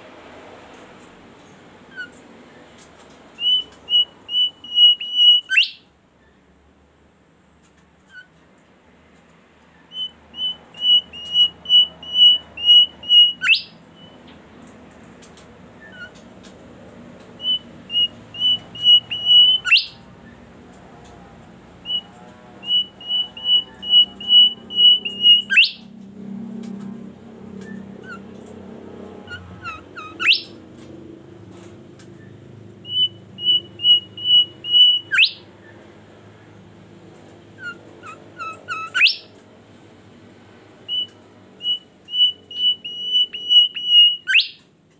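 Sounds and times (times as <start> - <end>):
bird whistling song: 1.9 - 2.2, 3.4 - 6.4, 9.9 - 14.2, 15.8 - 16.2, 17.4 - 20.4, 21.8 - 25.9, 27.6 - 28.3, 29.2 - 30.6, 32.2 - 35.8, 37.6 - 39.3, 40.8 - 44.7.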